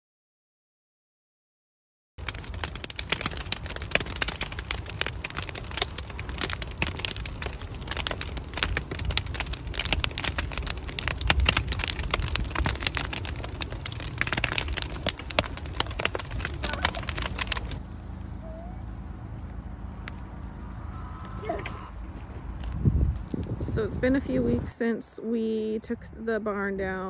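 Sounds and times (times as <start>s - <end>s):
wood fire crackling and popping: 2.2s - 18.0s, 18.9s - 20.6s
low rumble: 2.2s - 24.8s.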